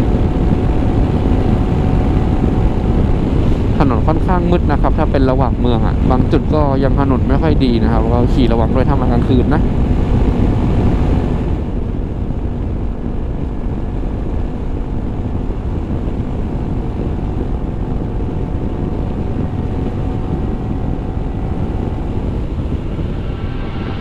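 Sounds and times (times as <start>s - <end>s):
wind and road noise: 0.0s - 24.0s
scooter engine hum: 9.6s - 24.0s.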